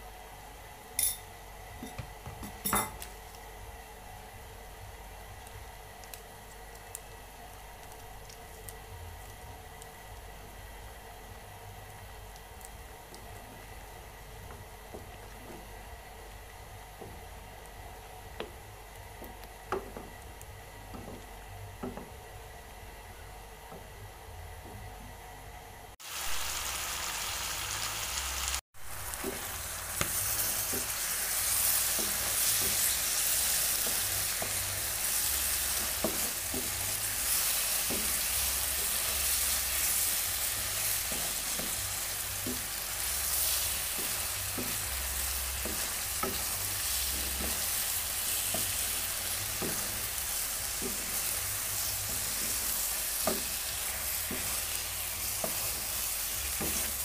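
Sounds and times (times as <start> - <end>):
chicken wings sizzling in sauce: 26.0 - 57.0.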